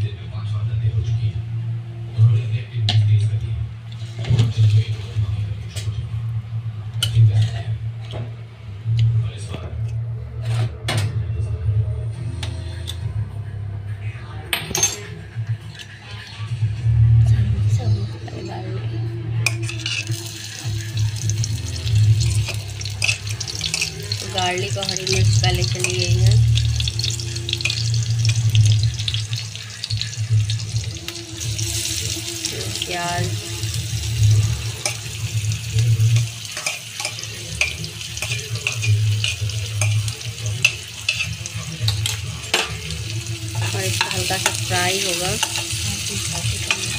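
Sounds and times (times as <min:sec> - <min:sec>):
metal spoon scraping steel plate: 0:19.5 - 0:20.2, 0:22.8 - 0:24.1, 0:36.1 - 0:41.4
garlic sizzling in hot oil: 0:19.7 - 0:46.9
low hum: 0:20.2 - 0:36.4.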